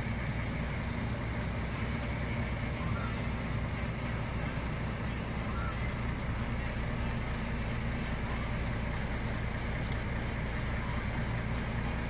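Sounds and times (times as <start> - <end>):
diesel engine drone: 0.0 - 12.0.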